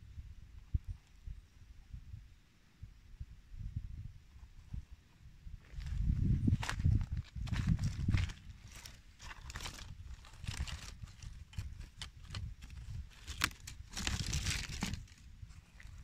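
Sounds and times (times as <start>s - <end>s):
leaves rustling underfoot: 5.6s - 16.0s
twig snapping: 11.8s - 15.0s.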